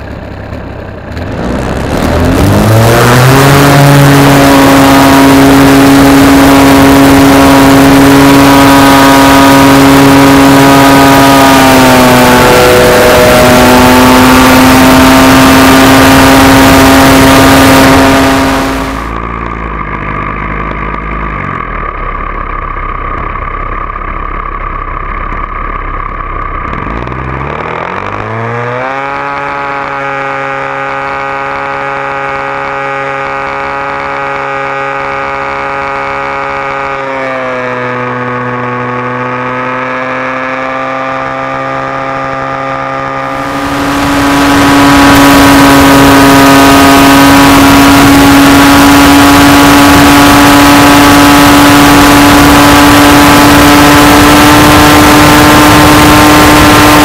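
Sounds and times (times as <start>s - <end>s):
model airplane engine whining: 0.0s - 57.0s
propeller wash hiss: 43.2s - 48.2s.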